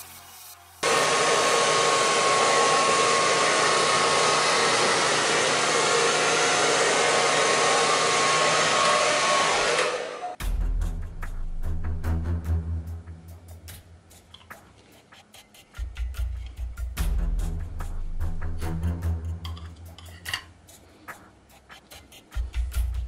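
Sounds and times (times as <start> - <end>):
hair dryer blowing: 0.8 - 10.4
background music with a beat: 10.4 - 23.0.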